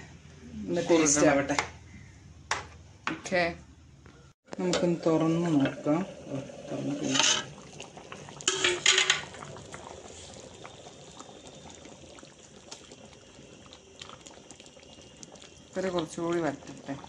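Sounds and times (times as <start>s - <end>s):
curry bubbling in pan: 4.6s - 17.0s
ladle stirring: 6.7s - 17.0s.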